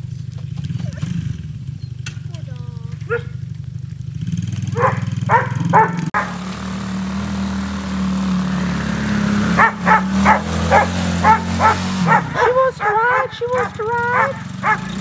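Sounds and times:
atv engine running: 0.0s - 15.0s
dog barking: 3.0s - 3.4s, 4.8s - 6.4s, 9.5s - 15.0s.

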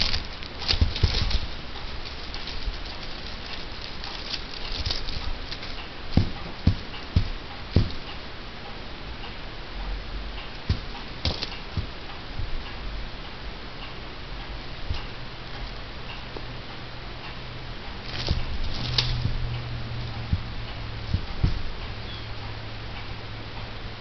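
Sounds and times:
fur rustling: 0.0s - 8.5s, 10.5s - 12.6s, 17.8s - 22.2s
soft thumps on microphone: 21.1s - 21.7s.

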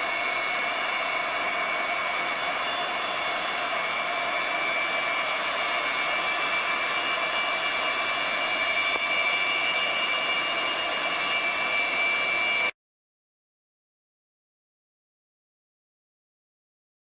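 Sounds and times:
jet engine whine: 0.0s - 12.8s.

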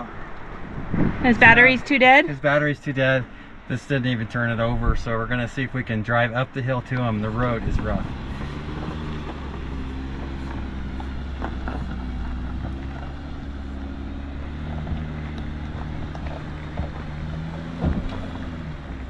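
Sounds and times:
van engine running low speed: 0.0s - 19.0s
knocks and rattles from bumps: 7.6s - 19.0s.

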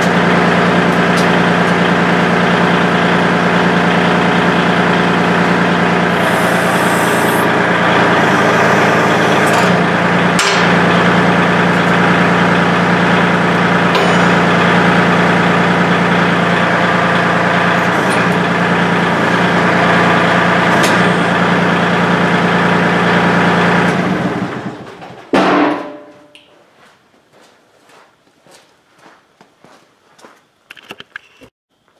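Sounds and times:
backhoe hydraulics: 0.0s - 24.8s
diesel tractor engine running: 0.0s - 26.4s.

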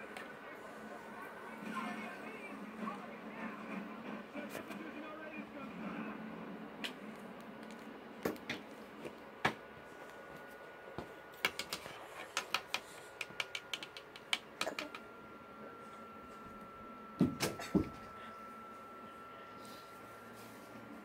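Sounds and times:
pencil tapping on wooden table: 11.4s - 15.0s.

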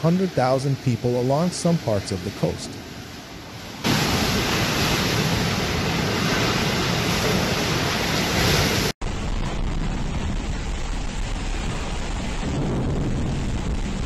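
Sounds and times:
heavy rain: 0.0s - 14.0s
low wind rumble: 2.7s - 14.0s
storm wind buffeting microphone: 3.7s - 14.0s.

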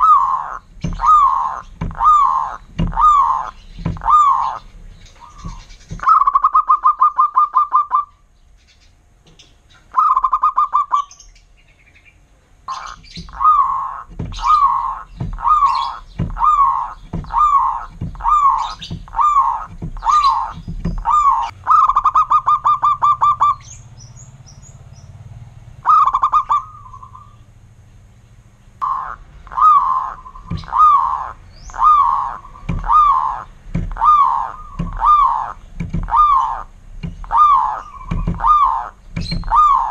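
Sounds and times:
dove trilling and cooing: 0.0s - 8.8s, 9.7s - 11.5s, 12.7s - 24.8s, 25.7s - 27.6s, 28.7s - 39.9s.

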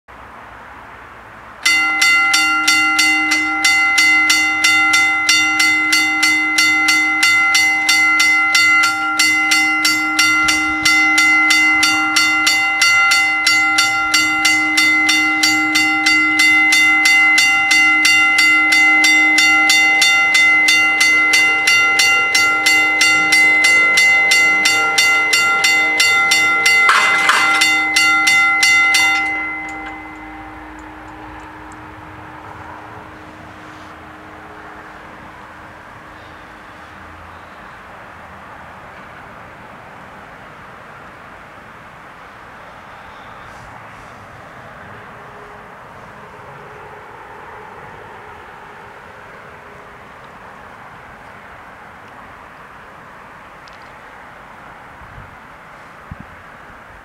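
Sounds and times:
level crossing bells ringing: 1.6s - 37.6s.

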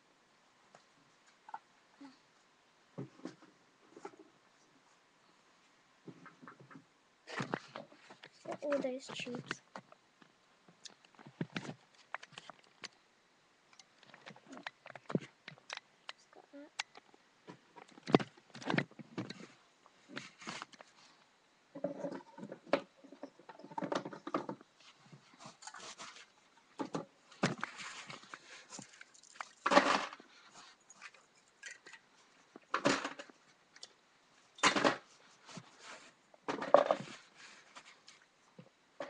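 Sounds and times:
objects being handled: 6.0s - 13.0s, 13.7s - 34.0s.

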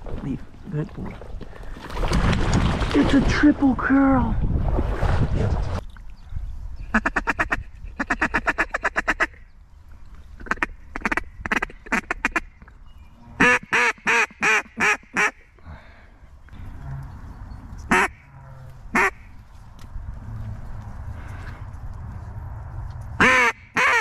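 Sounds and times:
duck call quacks: 13.4s - 15.4s, 17.9s - 18.2s, 18.9s - 19.3s, 23.2s - 24.0s.

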